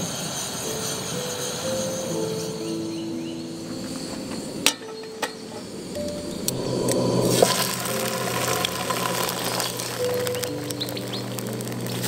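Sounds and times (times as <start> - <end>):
pan clinking on metal supports: 4.7 - 5.6
food sizzling in hot oil: 6.6 - 12.0.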